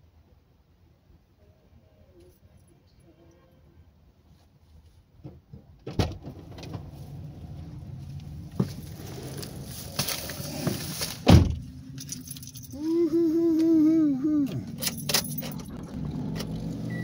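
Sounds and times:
car door shutting thump: 0:11.2 - 0:11.6
keys jingling: 0:11.8 - 0:13.0, 0:14.5 - 0:16.5.

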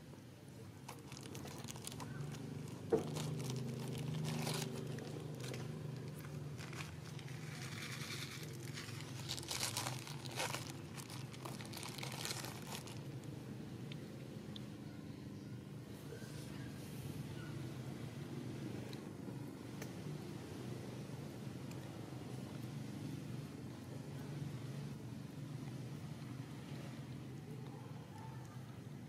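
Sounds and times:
low steady hum: 0:00.0 - 0:29.0.

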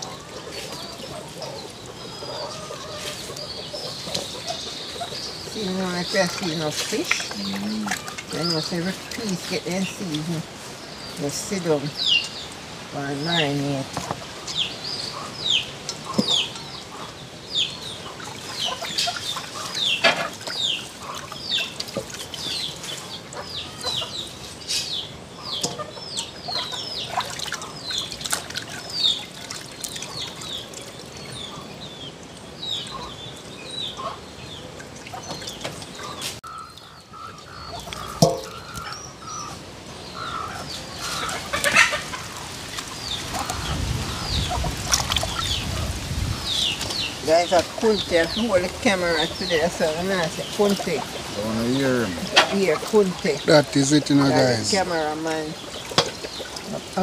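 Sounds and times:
fowl chirping: 0:00.0 - 0:06.2, 0:23.3 - 0:28.1, 0:33.8 - 0:34.3, 0:35.1 - 0:55.8.

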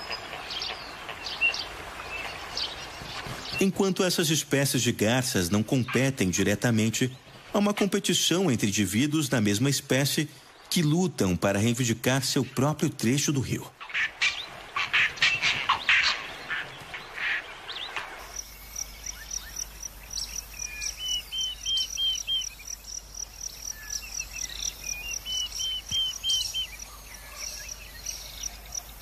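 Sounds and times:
herons giving rasping calls: 0:00.0 - 0:08.6, 0:11.6 - 0:28.9.

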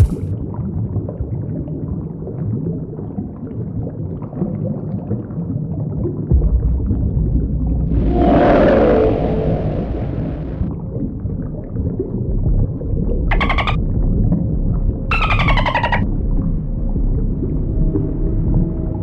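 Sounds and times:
underwater gurgling rumble: 0:00.0 - 0:19.0
low moaning tone: 0:06.4 - 0:12.6, 0:16.0 - 0:19.0.

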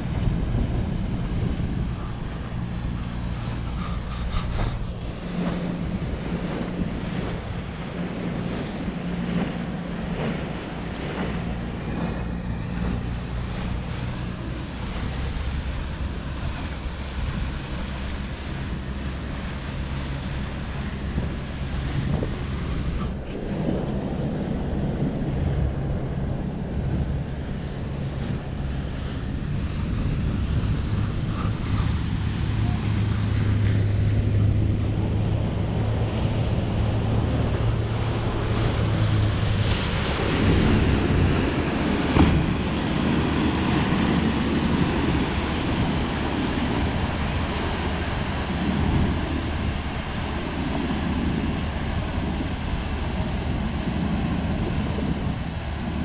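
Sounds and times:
motorboat engine running: 0:00.0 - 0:56.0
water rushing past: 0:00.0 - 0:56.0
wind buffeting microphone: 0:00.0 - 0:56.0.

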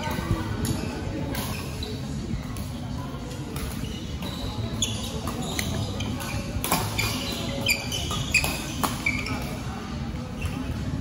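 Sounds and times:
background chatter: 0:00.0 - 0:11.0
shoe squeaks on court floor: 0:00.8 - 0:02.2, 0:03.6 - 0:09.7
rackets hitting shuttlecock: 0:06.6 - 0:09.5.

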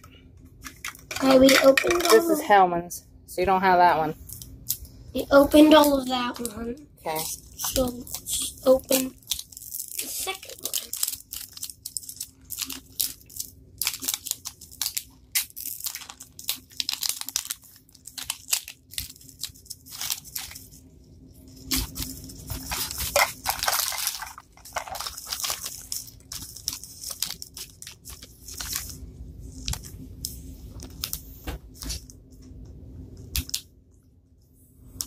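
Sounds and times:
plastic wrapping crinkling: 0:05.7 - 0:32.5.

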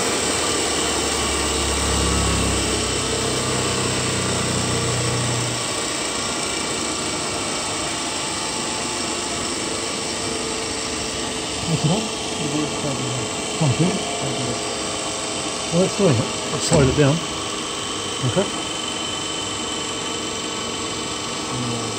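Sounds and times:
electric motor whirring: 0:00.0 - 0:21.9
low hum: 0:01.0 - 0:05.9, 0:11.4 - 0:18.6.

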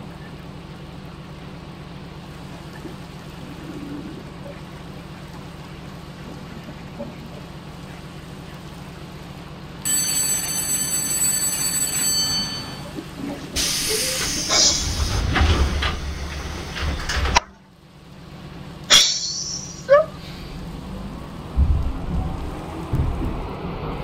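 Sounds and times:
metro train rumbling: 0:09.8 - 0:24.0
metallic train squeal: 0:13.6 - 0:17.2, 0:18.9 - 0:20.2.

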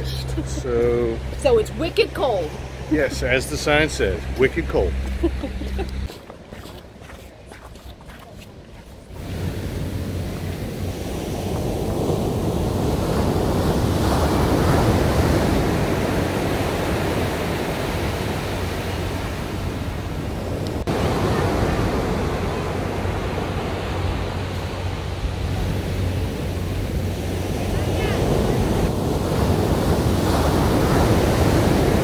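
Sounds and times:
ocean surf breaking on beach: 0:09.1 - 0:32.0.

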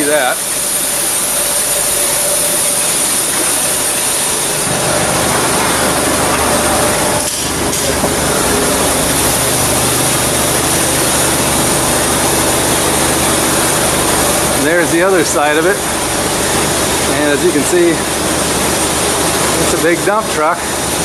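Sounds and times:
heavy machinery noise: 0:00.0 - 0:21.0
deep low drone: 0:01.2 - 0:17.2.

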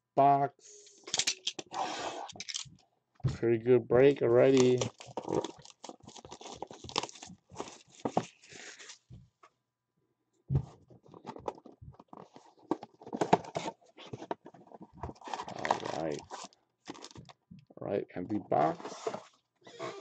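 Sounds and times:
plastic wrap tearing and crinkling: 0:04.4 - 0:09.0, 0:15.1 - 0:17.3
cardboard box clicks and rustles: 0:11.0 - 0:17.2.

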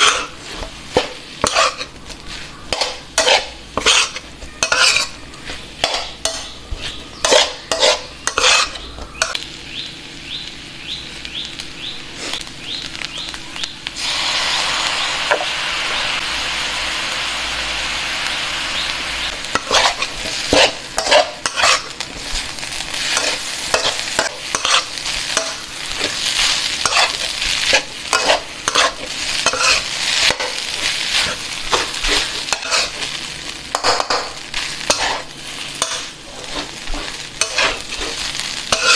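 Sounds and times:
metal spatula scraping wok: 0:00.0 - 0:09.4, 0:19.2 - 0:38.9
frying sizzle: 0:00.0 - 0:38.9.

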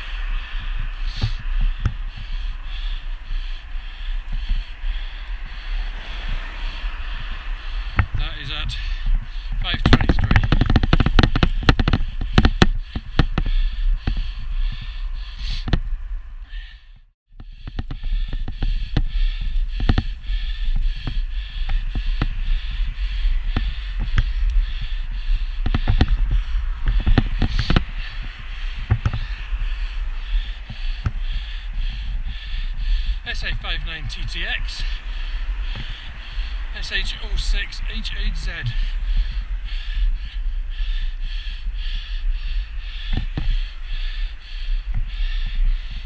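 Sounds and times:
road noise: 0:00.0 - 0:46.0
wind rumble: 0:00.0 - 0:46.0
sharp knocks and clicks: 0:09.8 - 0:14.2.

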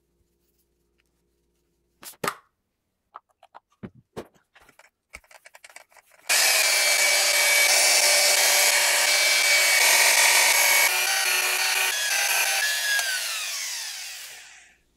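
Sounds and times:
light taps and handling: 0:03.1 - 0:06.3
handheld polisher running: 0:06.3 - 0:14.8.

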